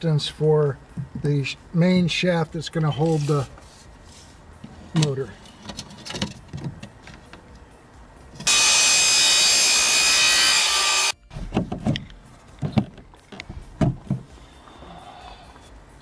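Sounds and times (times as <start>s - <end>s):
power saw cutting plastic pipe: 8.4s - 11.2s.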